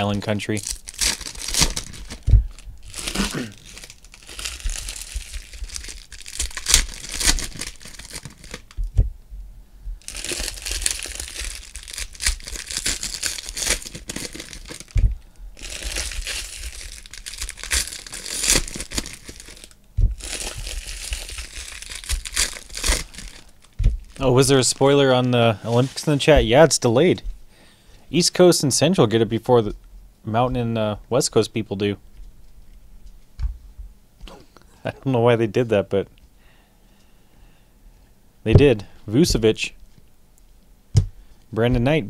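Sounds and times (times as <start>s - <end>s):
foil wrappers crinkling and tearing: 0.0s - 8.8s, 10.0s - 15.0s, 15.6s - 27.1s
soft thuds: 2.2s - 2.6s, 8.8s - 10.0s, 14.9s - 15.2s, 20.0s - 20.7s, 23.8s - 24.2s, 33.4s - 33.9s, 38.5s - 39.4s.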